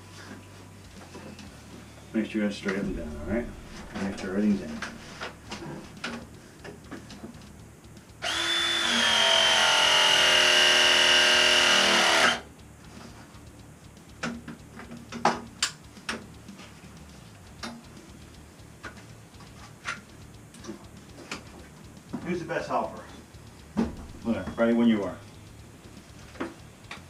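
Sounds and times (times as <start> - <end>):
press tool motor whining: 8.2 - 12.4.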